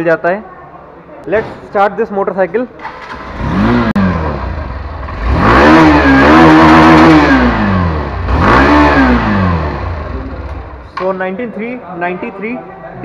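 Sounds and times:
motorcycle engine revving: 2.8s - 11.0s.

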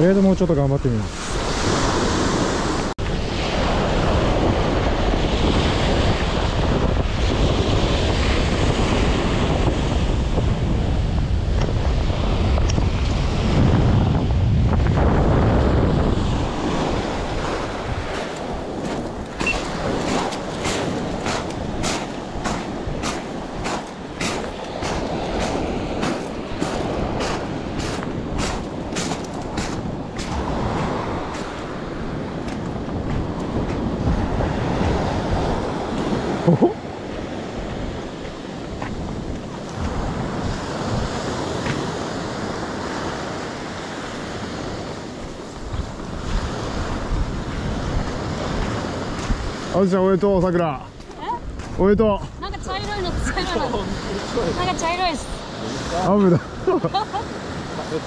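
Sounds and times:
waves washing on shore: 0.2s - 58.0s
wind buffeting microphone: 0.8s - 58.0s.

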